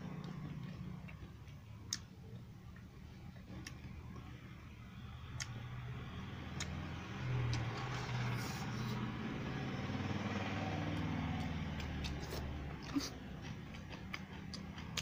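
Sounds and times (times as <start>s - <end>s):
vehicle engine hum: 0.0s - 15.0s
eating and chewing clicks: 0.1s - 4.3s, 5.4s - 5.6s, 6.5s - 6.8s, 10.9s - 15.0s.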